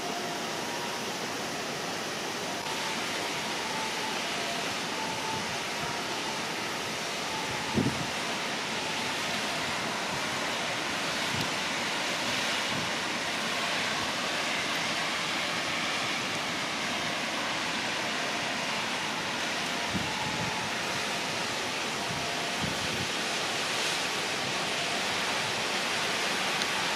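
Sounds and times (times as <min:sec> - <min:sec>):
wet city ambience hiss: 0:00.0 - 0:26.9.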